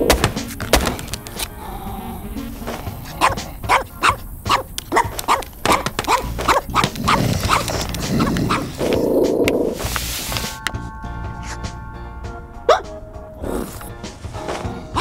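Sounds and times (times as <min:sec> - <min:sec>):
background music: 0:00.0 - 0:15.0
dog barking rapidly: 0:03.1 - 0:09.0, 0:12.7 - 0:13.0.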